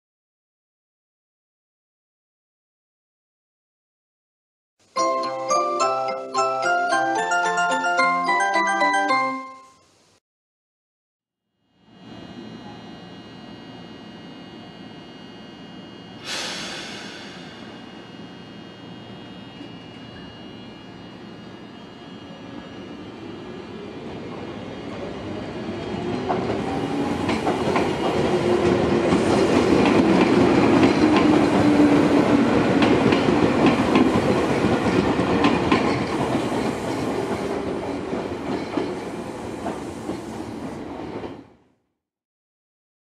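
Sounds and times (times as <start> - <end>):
electric train motor hum: 11.7 - 38.5.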